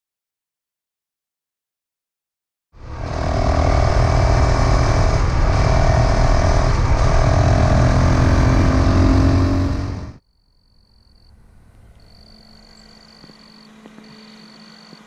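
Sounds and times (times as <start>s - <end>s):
motorcycle engine rumble: 2.8s - 10.2s.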